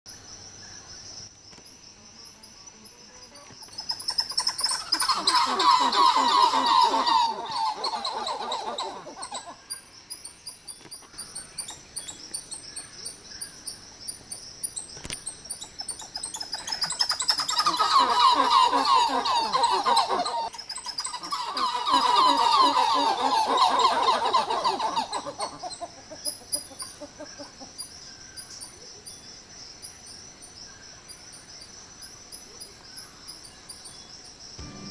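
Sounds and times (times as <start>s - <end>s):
high insect drone: 0.1s - 34.9s
monkeys calling: 3.6s - 9.7s, 15.6s - 27.9s.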